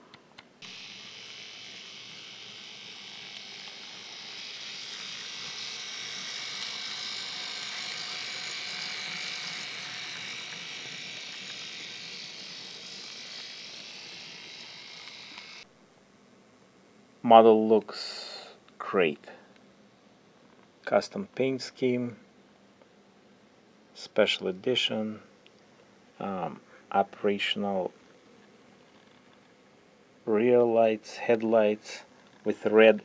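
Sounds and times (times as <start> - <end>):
model train motor buzzing: 0.6 - 15.7
model train wheel noise: 0.6 - 15.7.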